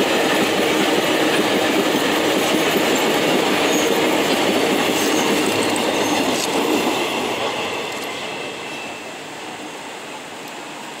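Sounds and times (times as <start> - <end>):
train wagon wheels clattering: 0.0 - 8.4
faint high wheel squeals: 8.1 - 9.3.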